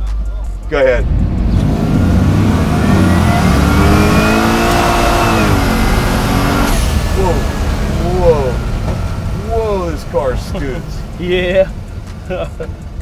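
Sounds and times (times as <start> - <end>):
car engine accelerating hard: 0.8 - 13.0
turbo whistle rising: 1.7 - 6.6.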